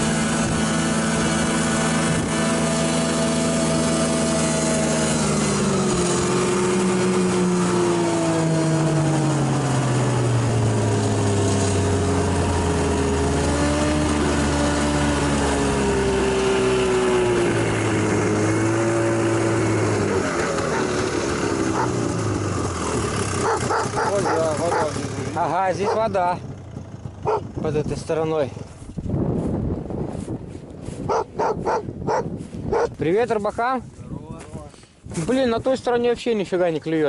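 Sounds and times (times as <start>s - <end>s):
snowmobile engine running: 0.0s - 33.8s.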